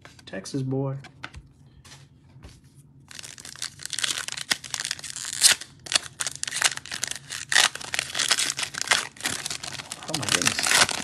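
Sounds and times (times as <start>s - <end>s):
foil wrapper crinkling and tearing: 3.1s - 11.0s.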